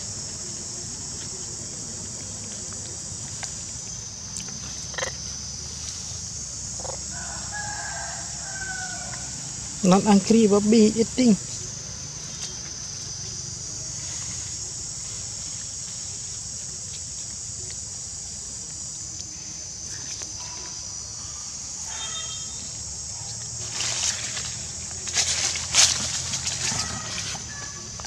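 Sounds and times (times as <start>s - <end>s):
insects droning: 0.0s - 28.0s
rustling: 23.3s - 28.0s.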